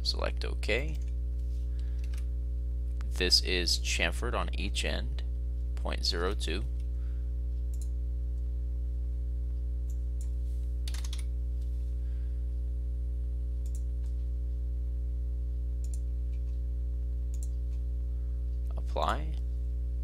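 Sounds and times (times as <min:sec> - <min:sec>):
low electrical hum with buzz: 0:00.0 - 0:20.0
computer mouse clicks: 0:07.7 - 0:07.9, 0:09.9 - 0:11.3, 0:13.6 - 0:14.1, 0:15.8 - 0:16.6, 0:17.3 - 0:17.6.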